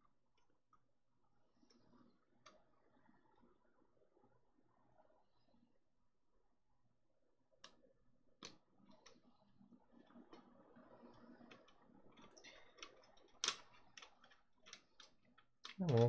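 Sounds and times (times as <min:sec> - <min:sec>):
plastic parts clicking: 0:12.2 - 0:16.0.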